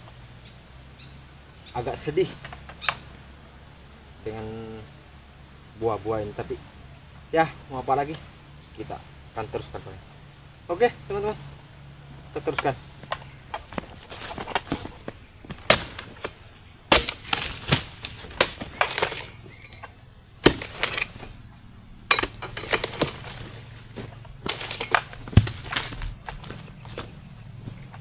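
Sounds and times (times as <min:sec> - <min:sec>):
fronds rustling and crackling: 0:00.0 - 0:28.0
chisel chopping palm fronds: 0:12.4 - 0:21.4, 0:22.1 - 0:28.0.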